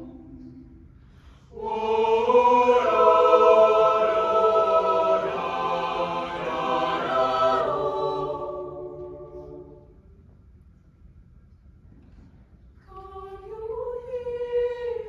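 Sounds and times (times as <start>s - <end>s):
choir singing sustained chords: 0.0s - 10.3s.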